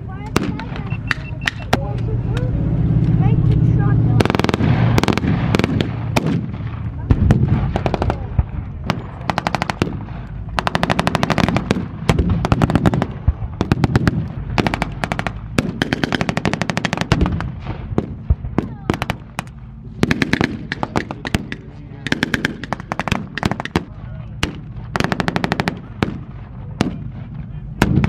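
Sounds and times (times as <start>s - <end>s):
tank engines running: 0.0s - 28.0s
machine guns firing bursts: 4.2s - 6.5s, 7.1s - 8.3s, 8.9s - 27.1s.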